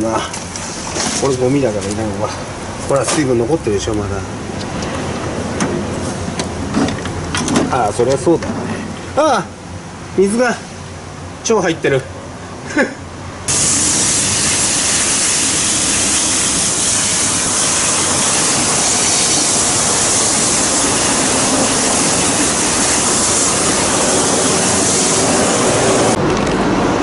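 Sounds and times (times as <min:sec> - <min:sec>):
compressed air blow gun hissing: 0:13.5 - 0:26.2.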